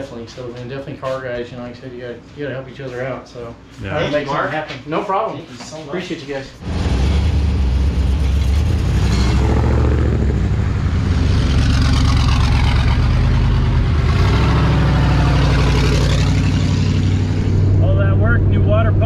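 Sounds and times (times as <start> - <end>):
car engine running: 6.6 - 19.0.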